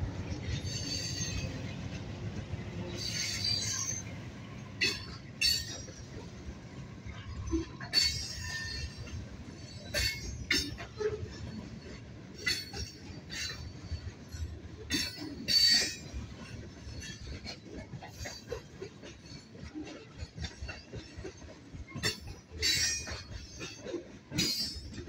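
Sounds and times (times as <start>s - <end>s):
train wheels rumbling on rail: 0.0s - 25.0s
high wheel squeals: 0.5s - 1.7s, 2.8s - 4.2s.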